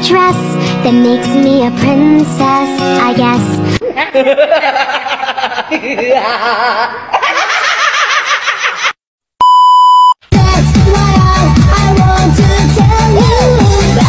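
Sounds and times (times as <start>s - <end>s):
test-tone beep: 9.4s - 10.2s
electronic dance music: 10.4s - 14.0s.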